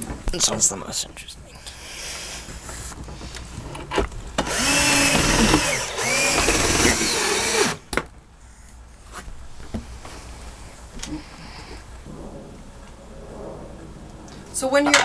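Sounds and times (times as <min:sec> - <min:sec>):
power drill driving a screw: 0:04.4 - 0:07.8.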